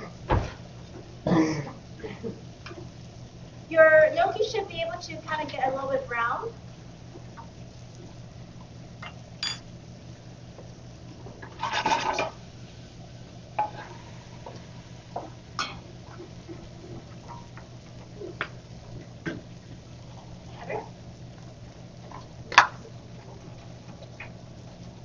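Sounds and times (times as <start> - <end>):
steady low hum: 0.0 - 25.0
pots and pans clattering: 11.4 - 12.4.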